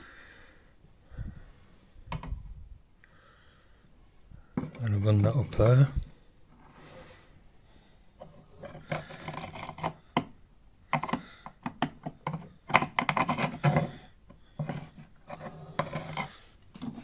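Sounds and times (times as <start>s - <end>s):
pencil scriber scraping plaster: 8.2s - 10.3s, 10.9s - 17.0s.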